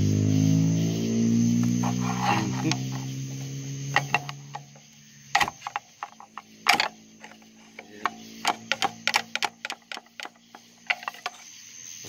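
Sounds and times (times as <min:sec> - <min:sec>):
pry bar clicking and knocking: 0:03.9 - 0:11.4.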